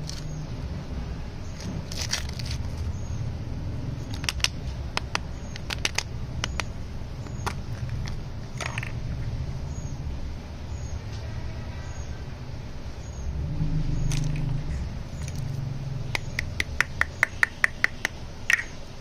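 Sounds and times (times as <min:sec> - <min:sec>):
plastic egg clicking open: 0:04.1 - 0:06.7.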